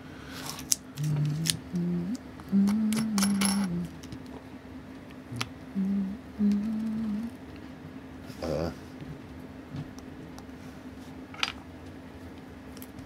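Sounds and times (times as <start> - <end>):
person humming: 0.9 - 4.1, 5.3 - 7.4, 8.3 - 8.8.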